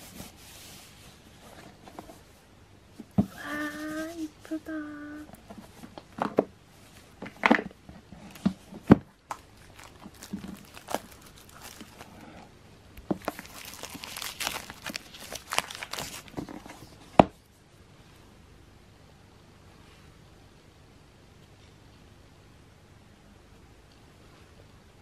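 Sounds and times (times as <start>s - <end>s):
paper crinkling: 9.2s - 17.1s.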